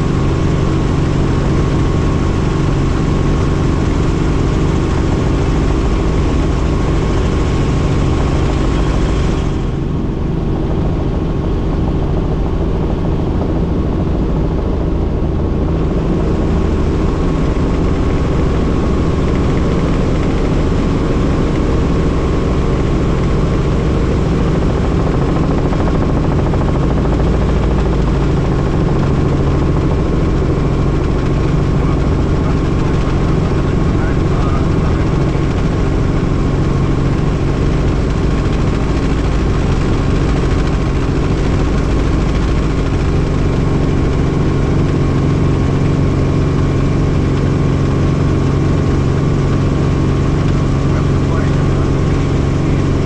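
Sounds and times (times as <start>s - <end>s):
helicopter engine and rotor drone: 0.0s - 53.0s.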